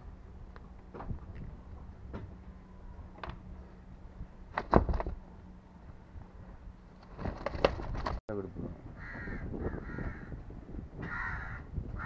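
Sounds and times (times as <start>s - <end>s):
low steady hum: 0.0s - 9.0s.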